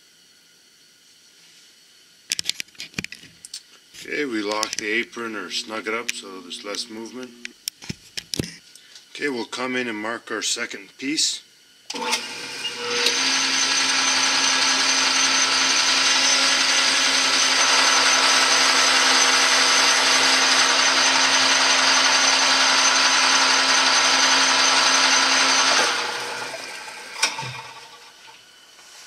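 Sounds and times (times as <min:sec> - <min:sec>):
cutting tool hiss: 0:03.8 - 0:09.2, 0:11.8 - 0:29.0
metal lathe whirring: 0:04.3 - 0:07.6, 0:11.9 - 0:28.6.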